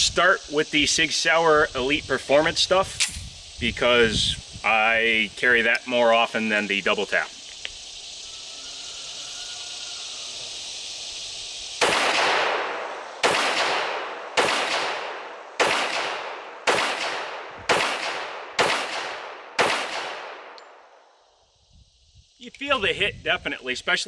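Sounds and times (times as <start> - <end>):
pistol shots echoing: 11.8 - 20.6.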